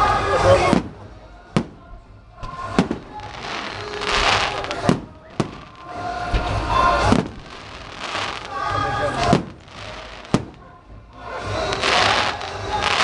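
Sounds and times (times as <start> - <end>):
fireworks bangs: 0.0 - 13.0
fireworks rushing hiss: 2.5 - 10.6, 11.2 - 13.0.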